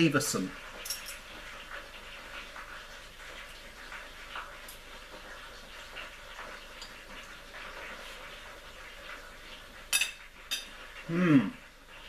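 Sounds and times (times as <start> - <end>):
sharp cutlery clinks: 0.8 - 1.2
cutlery scraping on a plate: 9.9 - 10.8
person humming while chewing: 11.0 - 11.7.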